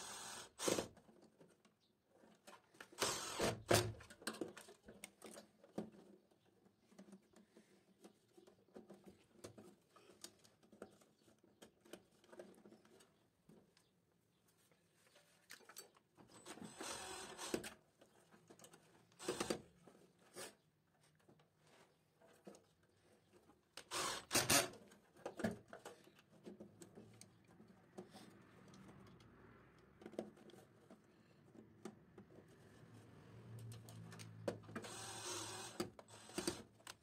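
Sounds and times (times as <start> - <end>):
cordless drill whirring: 0.0 - 0.9, 3.0 - 3.6, 16.5 - 17.6, 19.2 - 19.6, 23.8 - 24.7, 34.8 - 36.7.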